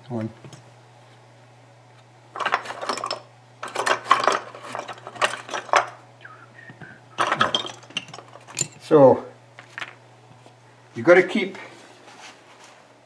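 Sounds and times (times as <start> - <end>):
tools clattering in wooden tray: 2.4 - 6.0, 7.2 - 8.9.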